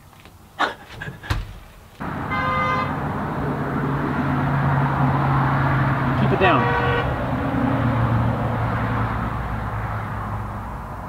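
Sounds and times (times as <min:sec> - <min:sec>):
car horn toot: 0:02.2 - 0:03.0, 0:06.4 - 0:07.2.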